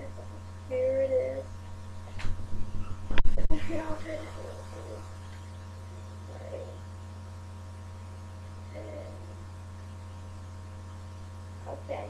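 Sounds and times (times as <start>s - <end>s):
electrical mains hum: 0.0s - 12.0s
faint murmurs: 2.6s - 6.9s, 8.6s - 9.6s.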